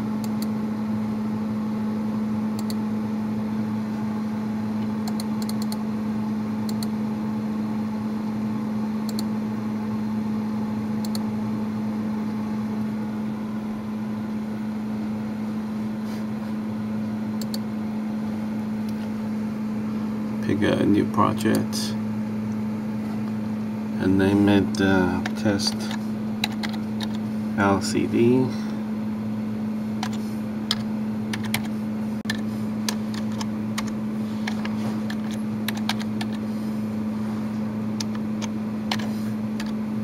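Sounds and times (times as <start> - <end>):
computer fans humming: 0.0 - 40.0
computer mouse clicks: 2.6 - 2.8, 5.0 - 5.8, 6.7 - 6.9, 9.1 - 9.3, 11.0 - 11.2, 17.4 - 17.6, 32.3 - 36.4, 38.0 - 39.8.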